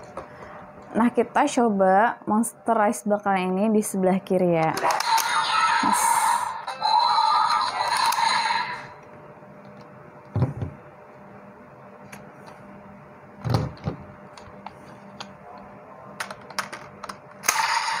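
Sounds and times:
toy electronic sound effects: 4.9s - 8.9s.

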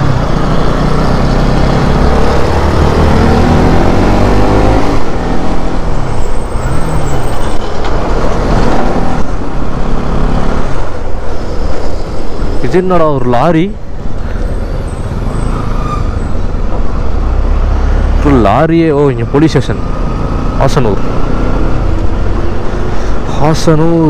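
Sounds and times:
motorcycle engine revving: 0.0s - 10.7s, 19.7s - 23.0s
road and wind rush: 0.0s - 24.0s.

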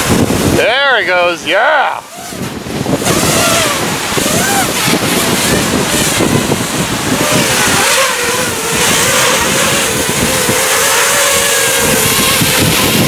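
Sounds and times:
wind buffeting microphone: 0.0s - 13.0s
drone motors whining: 1.9s - 13.0s.

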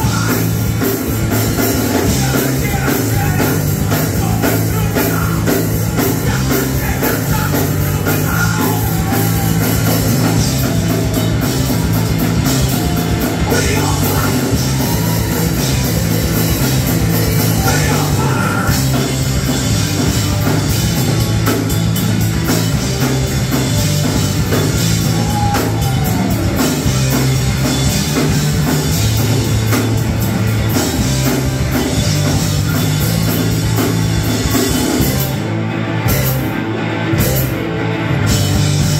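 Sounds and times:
punk rock band playing live: 0.0s - 38.9s
person singing: 1.8s - 10.0s, 13.2s - 15.6s, 17.4s - 19.0s.

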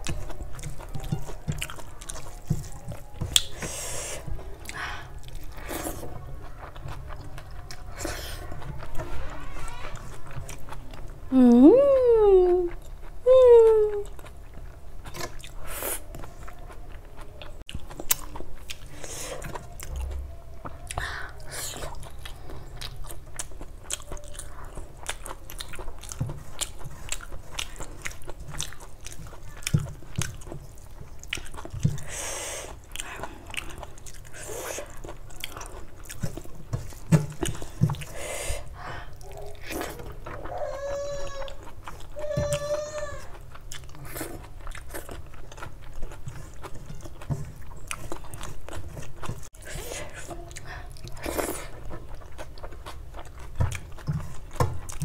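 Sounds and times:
person chewing wetly: 0.0s - 9.0s, 10.0s - 11.3s, 12.0s - 55.0s
closed-mouth hums: 11.3s - 14.2s.

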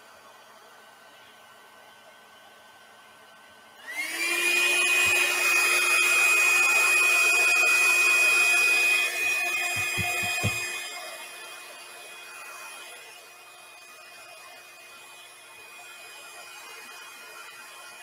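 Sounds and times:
electric blower running: 3.8s - 12.9s.

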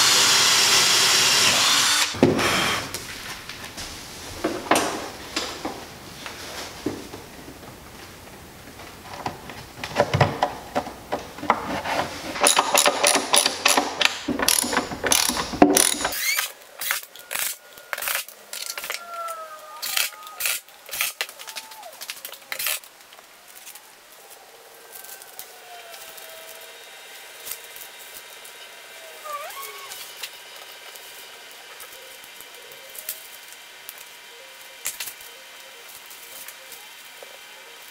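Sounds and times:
sharp clicks and knocks: 9.0s - 19.0s
ratchet wrench clicking: 12.4s - 19.0s.

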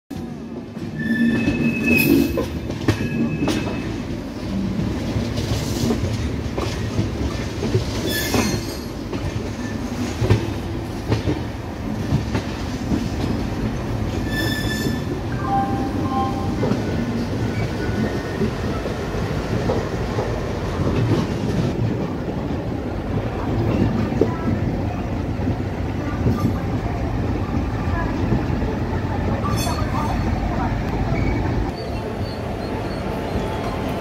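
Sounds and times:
train wheels rumbling and clattering: 0.1s - 34.0s
high wheel squeals: 1.0s - 4.0s, 14.2s - 16.6s.

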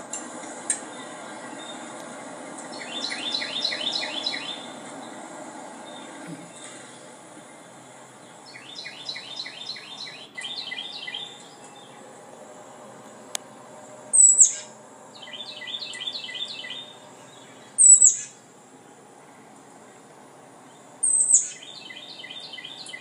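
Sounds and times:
recorded birdsong chirping: 0.0s - 23.0s
high-pitched bird call: 2.7s - 5.1s, 8.5s - 12.0s, 14.1s - 18.4s.

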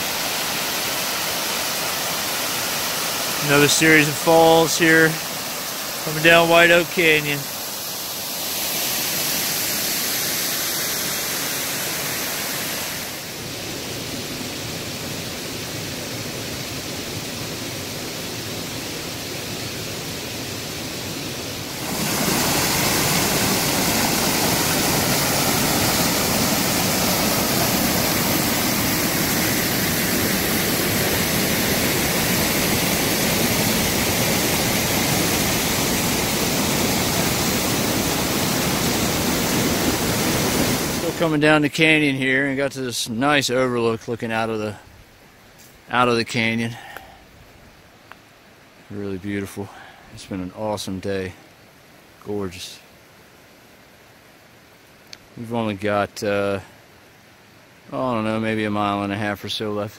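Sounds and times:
stream rushing over rock: 0.0s - 42.6s.

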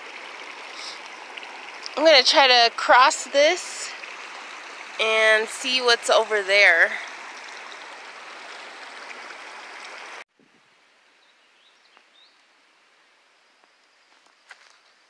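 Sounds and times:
creek running: 0.0s - 10.3s.

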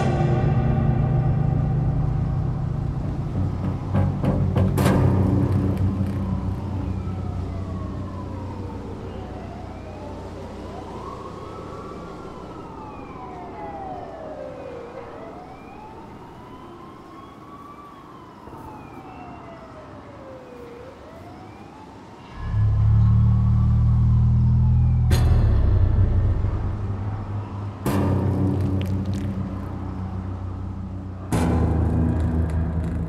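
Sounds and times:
low rumble: 0.0s - 7.8s, 22.4s - 33.0s
distant siren wailing: 0.0s - 33.0s.

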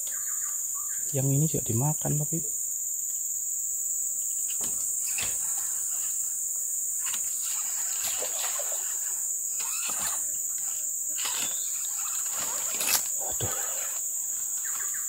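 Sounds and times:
insect drone: 0.0s - 15.0s
leaves and brush rustling: 2.8s - 15.0s.

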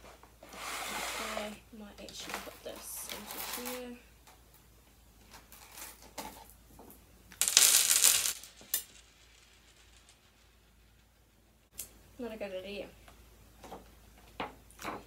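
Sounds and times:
sugar beads rattling into plastic container: 7.3s - 11.2s.

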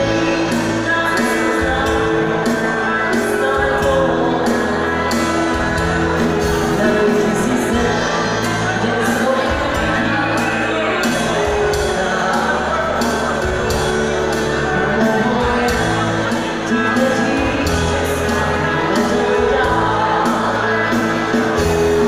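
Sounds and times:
live band playing amplified music: 0.0s - 22.0s
person singing: 0.0s - 22.0s.

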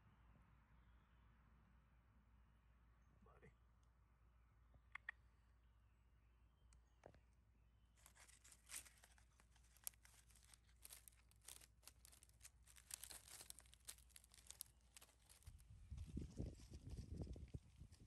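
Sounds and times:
dry leaves crackling underfoot: 7.9s - 18.0s.

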